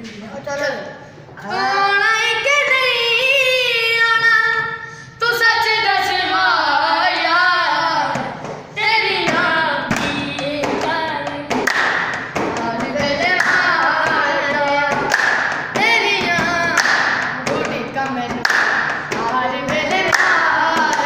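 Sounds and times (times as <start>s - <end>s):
boy singing: 1.4s - 11.7s, 12.4s - 15.2s, 15.8s - 21.0s
people clapping: 8.4s - 21.0s
hands drumming on wooden desk: 9.2s - 21.0s.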